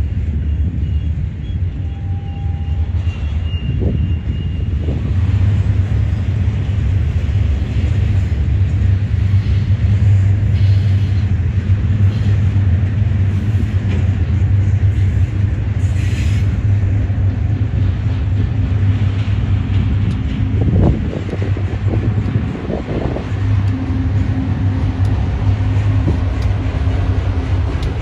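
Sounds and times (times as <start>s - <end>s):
train wheels squealing: 0.0s - 5.4s, 9.2s - 11.4s, 14.9s - 16.8s
freight train wheels rumbling on rails: 0.0s - 28.0s.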